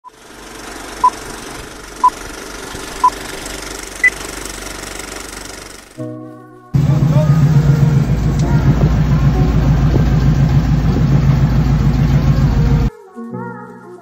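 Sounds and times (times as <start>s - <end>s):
film projector rattle and crackle: 0.1s - 6.0s
held chord of tones: 6.7s - 12.9s.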